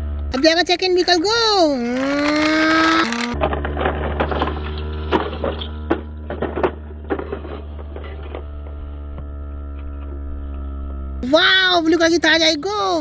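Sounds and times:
toy electric motor humming: 0.3s - 3.4s.

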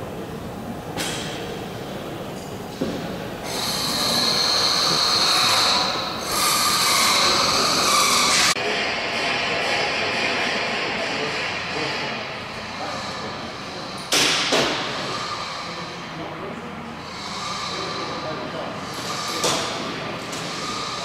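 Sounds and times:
pneumatic air tool whining: 3.4s - 8.6s, 17.0s - 21.0s.

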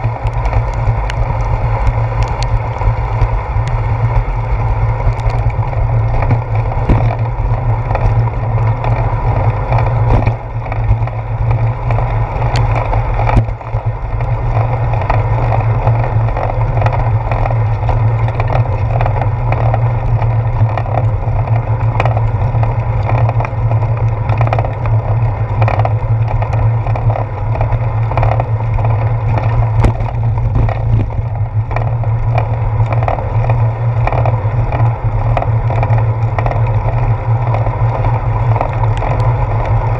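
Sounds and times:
bicycle rolling rumble: 0.0s - 39.9s
wind: 0.0s - 39.9s.

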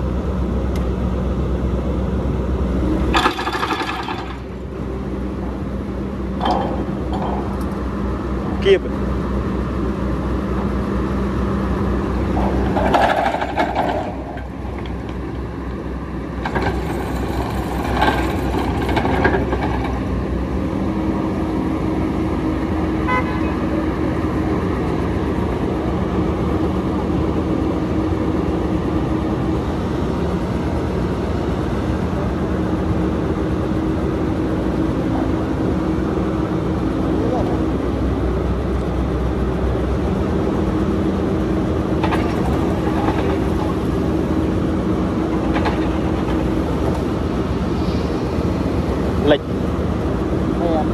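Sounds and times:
diesel engine running: 0.0s - 50.9s
metal clatter: 3.1s - 4.5s, 6.4s - 7.8s, 12.3s - 14.9s.

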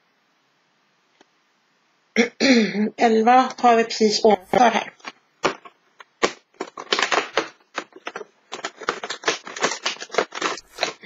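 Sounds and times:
cardboard tearing and rustling: 5.0s - 11.0s.

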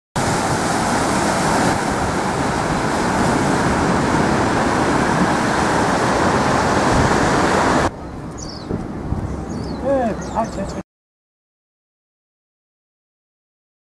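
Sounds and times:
surf breaking on rocky shore: 0.2s - 7.9s
wind: 0.2s - 10.8s.

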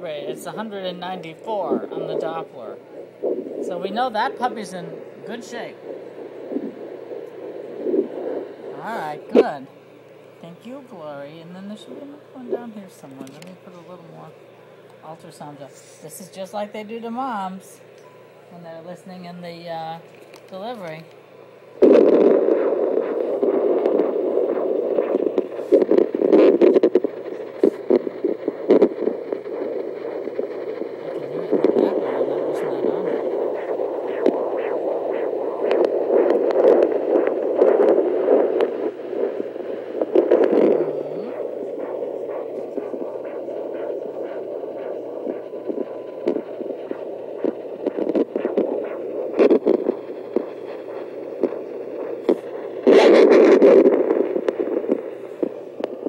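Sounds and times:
doppler ultrasound rushing noise: 0.0s - 56.0s
probe clicks and scrapes: 12.5s - 13.9s, 20.1s - 56.0s.

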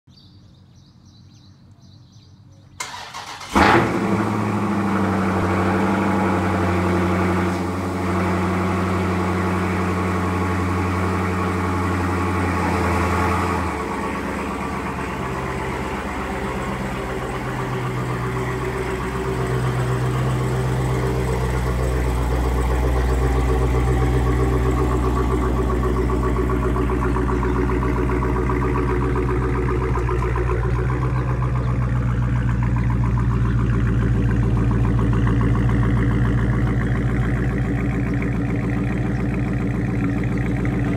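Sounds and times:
engine cranking: 2.8s - 4.1s
engine starting and idling: 2.8s - 40.9s.

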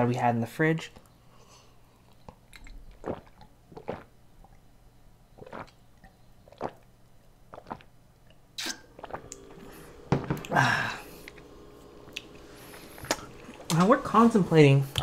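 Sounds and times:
person gulping drink: 2.0s - 4.7s, 5.4s - 13.7s.

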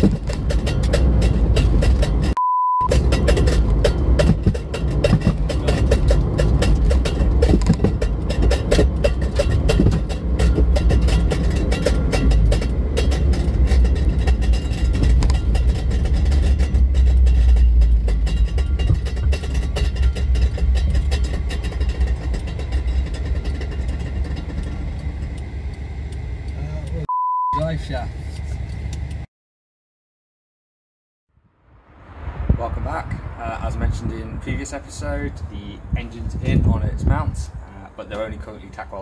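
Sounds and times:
car road and engine rumble: 0.0s - 29.3s, 31.4s - 39.0s
short high beep: 2.4s - 2.9s, 27.1s - 27.6s.

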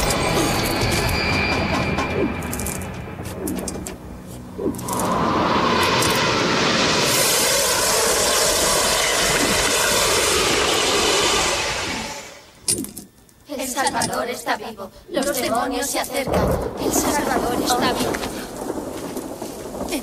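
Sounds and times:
loud rushing roar: 4.4s - 12.6s.

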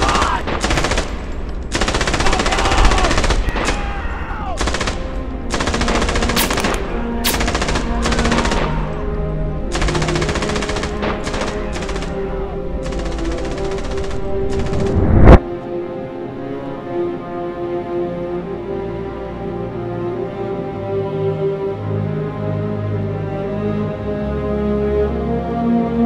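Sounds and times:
machine-gun fire: 0.0s - 3.4s
orchestral score with held notes: 1.8s - 26.0s.

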